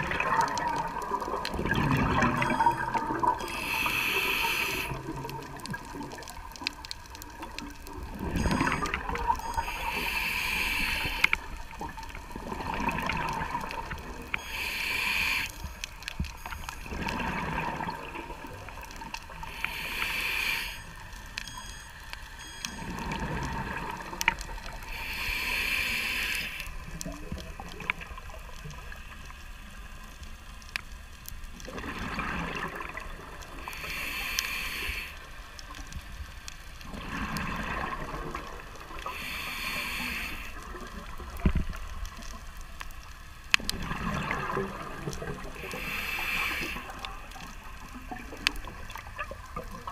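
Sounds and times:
gurgling exhaled bubbles: 0.0 - 10.0, 10.9 - 14.4, 16.7 - 20.0, 22.8 - 24.8, 31.5 - 33.7, 36.8 - 39.2, 43.6 - 49.9
regulator hissing inhale: 3.4 - 5.1, 9.5 - 11.6, 14.3 - 16.6, 19.3 - 21.2, 24.8 - 26.8, 33.6 - 35.6, 39.0 - 40.6, 45.5 - 47.3.

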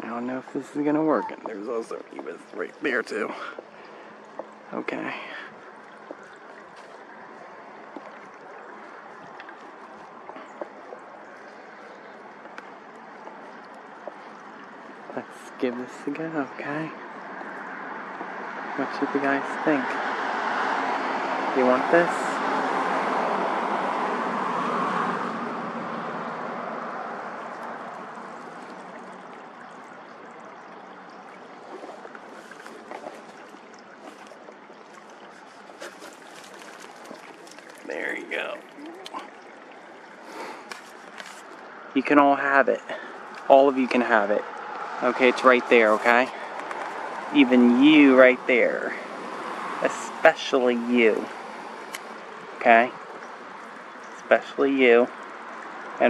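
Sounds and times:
flowing creek water: 0.0 - 56.0
faint clicks and rustles: 27.4 - 37.9, 38.6 - 41.8, 46.0 - 47.4.

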